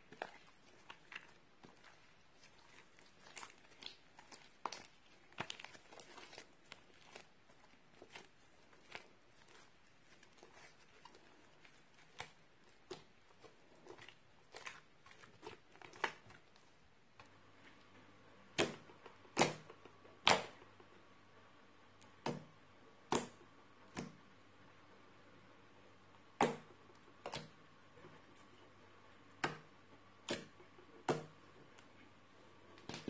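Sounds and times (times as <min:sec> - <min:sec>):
slime crackling and popping: 0:00.1 - 0:16.7.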